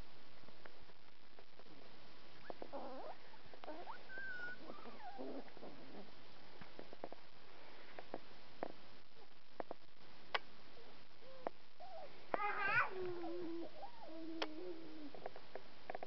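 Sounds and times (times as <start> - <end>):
puppies whining and yipping: 2.4 - 6.1, 11.2 - 15.3.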